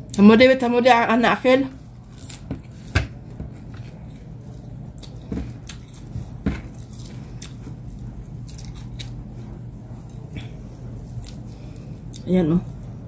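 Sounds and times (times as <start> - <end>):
chewing and lip-smacking: 4.0 - 12.3.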